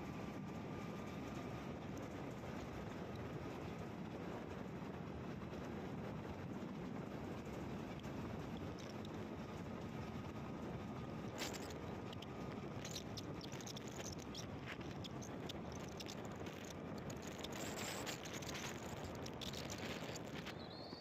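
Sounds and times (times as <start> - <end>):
highway traffic tyre noise: 4.2 - 20.6.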